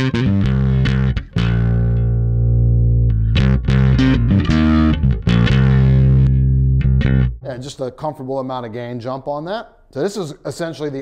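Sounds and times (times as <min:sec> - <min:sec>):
electric bass through effects pedal: 0:00.0 - 0:07.4.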